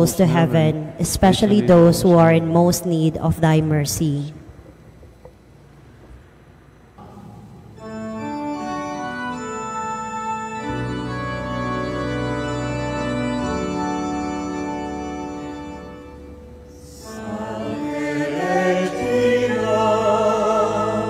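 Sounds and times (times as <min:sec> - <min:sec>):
organ chords: 0:05.8 - 0:21.0.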